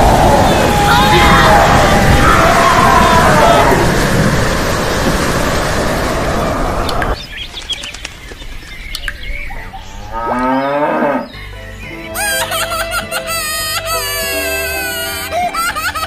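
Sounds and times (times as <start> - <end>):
steady rain: 0.0 - 7.7
birds chirping: 0.0 - 16.0
cow mooing: 10.1 - 11.4.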